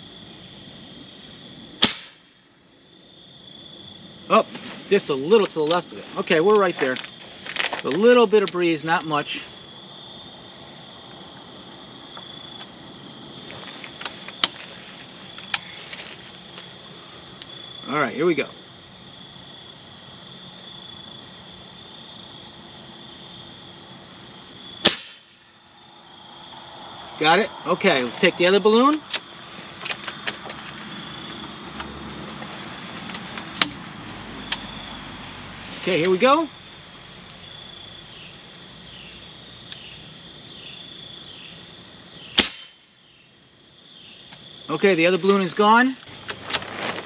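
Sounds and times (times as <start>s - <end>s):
high-pitched insect chirping: 0.0s - 46.3s
outdoor background hiss: 0.0s - 47.0s
air rifle shot: 1.8s - 2.3s, 24.8s - 25.4s, 42.4s - 42.8s.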